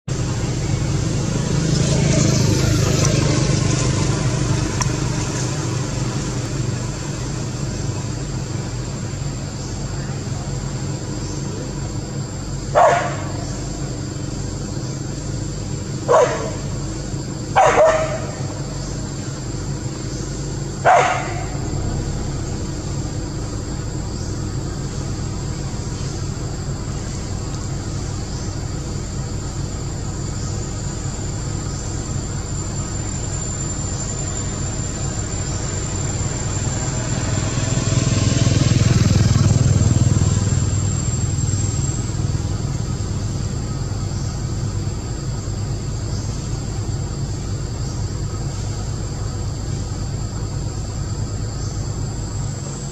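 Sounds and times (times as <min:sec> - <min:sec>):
motor vehicle passing: 0:00.1 - 0:09.6, 0:10.4 - 0:52.4
dog bark: 0:12.7 - 0:13.4, 0:16.1 - 0:16.8, 0:17.6 - 0:18.6, 0:20.8 - 0:21.7.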